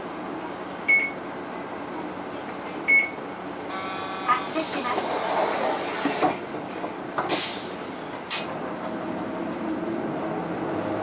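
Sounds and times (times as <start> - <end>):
compressed air hiss: 4.5 - 6.4
short air bursts: 4.5 - 6.4.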